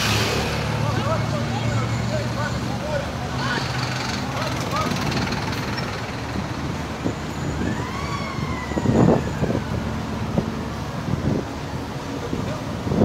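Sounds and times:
road traffic noise: 0:00.0 - 0:13.0
emergency siren wailing: 0:06.8 - 0:12.8.

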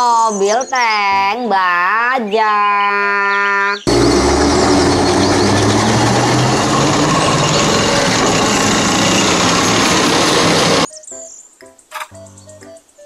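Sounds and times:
metallic clatter of steel tracks: 0:03.9 - 0:10.9
tank engine running: 0:03.9 - 0:10.9.

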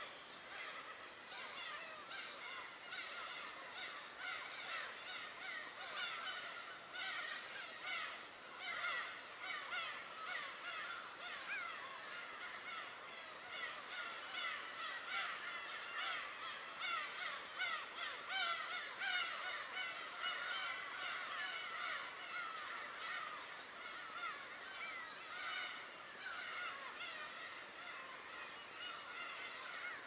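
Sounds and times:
flock of birds calling: 0:00.0 - 0:30.0.

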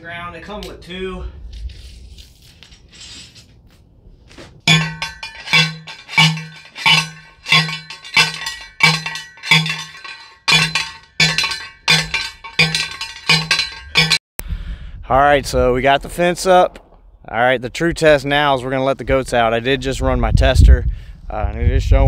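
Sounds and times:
post driver clanking on metal rod: 0:04.7 - 0:14.2.

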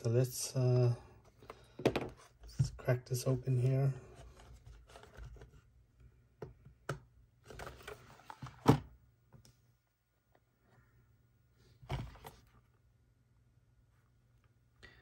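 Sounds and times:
knock on plastic case: 0:01.8 - 0:02.2.

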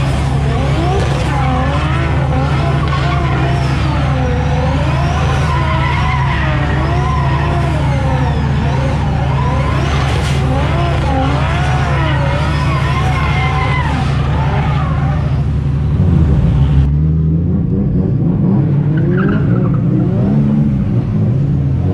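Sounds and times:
car engine revving: 0:00.0 - 0:21.9
tyres squealing: 0:00.1 - 0:15.6.

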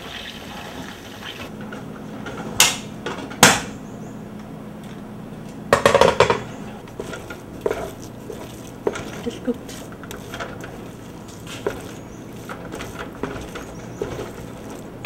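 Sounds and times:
metal cookware knocking: 0:05.7 - 0:07.8
cookware rattling clatter: 0:05.8 - 0:14.9.

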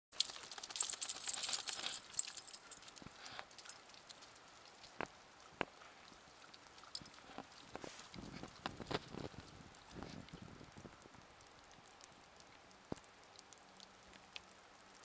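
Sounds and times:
rustling: 0:00.1 - 0:10.9
dog tags and clips jingling: 0:00.2 - 0:04.4.

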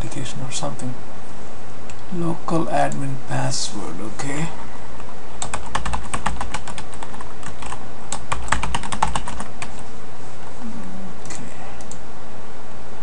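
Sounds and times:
typing on computer keyboard: 0:05.4 - 0:09.8.

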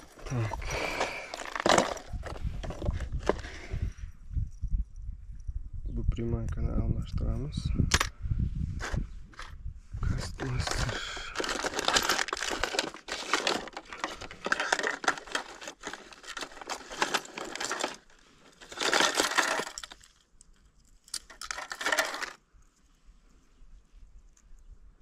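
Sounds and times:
metal fishing lures rattling: 0:11.4 - 0:22.4.

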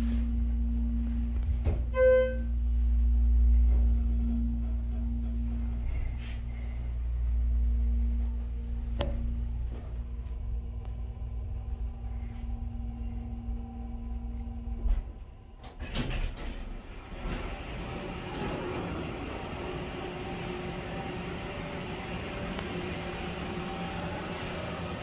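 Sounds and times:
elevator car humming: 0:00.0 - 0:25.0
elevator stopping thump: 0:01.3 - 0:06.9, 0:14.6 - 0:25.0
sliding doors clicking open: 0:15.6 - 0:21.4.

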